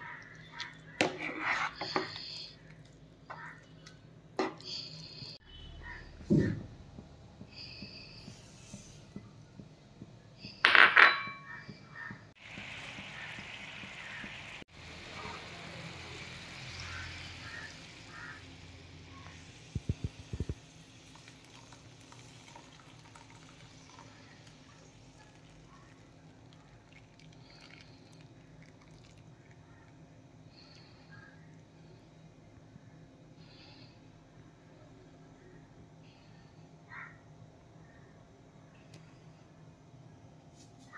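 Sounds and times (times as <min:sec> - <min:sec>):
frying pan hiss: 0:12.4 - 0:22.9.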